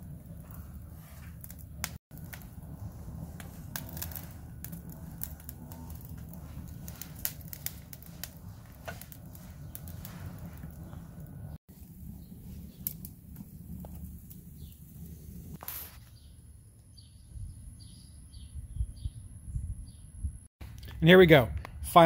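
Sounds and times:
logs crackling and popping: 0:00.0 - 0:16.2
fire low rumble: 0:00.0 - 0:20.5.

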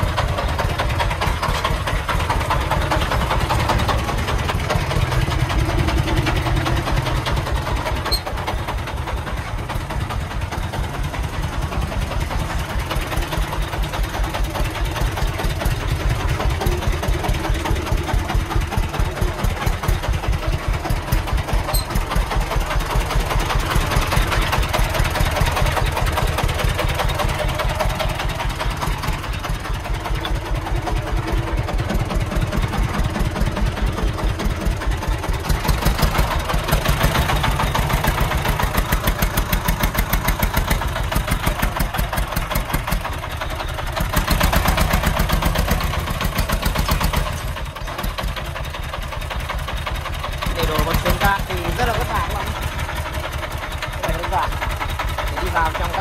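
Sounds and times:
diesel engine chugging: 0:00.0 - 0:56.0.

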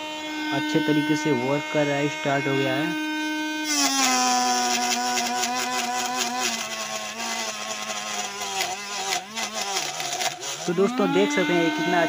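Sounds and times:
small motor whining: 0:00.0 - 0:12.0
crackling clatter of chopping: 0:08.5 - 0:10.5.

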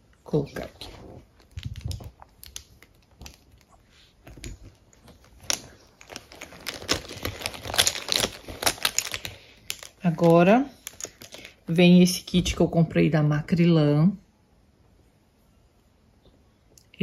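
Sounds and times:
rummaging in makeup pouch: 0:00.5 - 0:11.7.

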